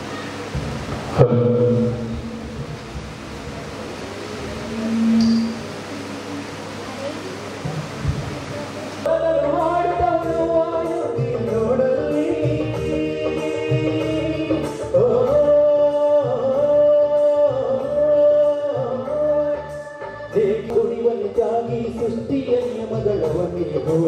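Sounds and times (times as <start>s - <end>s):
person singing long wavering notes: 4.3s - 6.6s.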